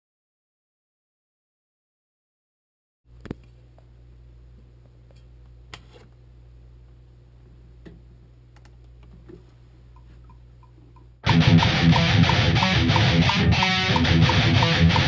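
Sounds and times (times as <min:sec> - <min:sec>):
guitar amplifier humming: 0:03.1 - 0:15.0
metronome ticks: 0:10.3 - 0:15.0.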